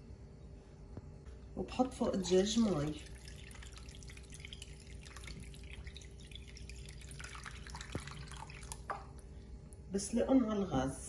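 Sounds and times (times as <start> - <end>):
water pouring into a saucepan: 2.4 - 9.2.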